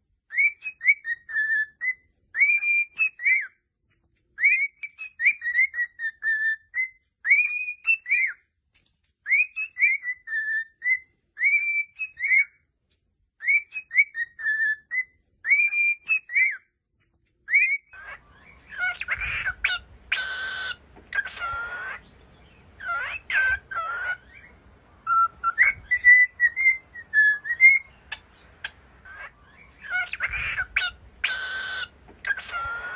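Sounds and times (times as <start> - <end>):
cockatiel whistling a tune: 0.2 - 3.6, 4.3 - 8.5, 9.2 - 12.7, 13.4 - 16.7, 17.4 - 32.9
harsh cockatiel call: 0.3 - 3.6, 4.4 - 8.4, 9.2 - 12.6, 13.4 - 16.7, 17.5 - 32.9
background hiss: 18.0 - 32.9.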